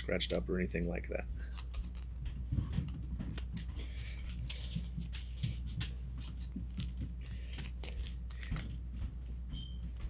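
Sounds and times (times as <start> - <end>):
steady low hum: 0.0 - 10.0
plastic sleeves rustling: 1.4 - 8.8.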